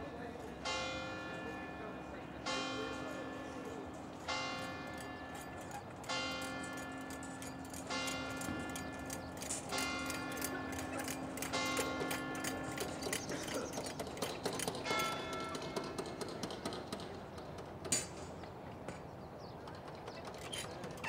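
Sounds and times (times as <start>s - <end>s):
church bell tolling: 0.6s - 16.5s.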